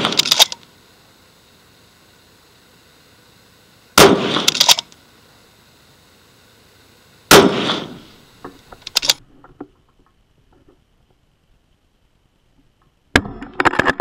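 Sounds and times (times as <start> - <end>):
rifle shot with echo: 0.0 - 0.5, 4.0 - 4.8, 7.3 - 8.1
rifle bolt metallic clicks: 0.0 - 0.6, 4.3 - 5.0, 8.8 - 9.2.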